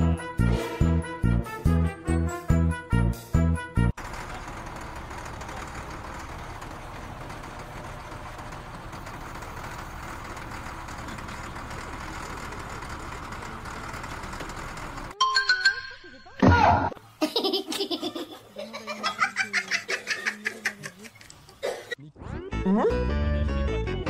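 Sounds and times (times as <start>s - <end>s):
diesel engine idling: 4.0s - 15.2s.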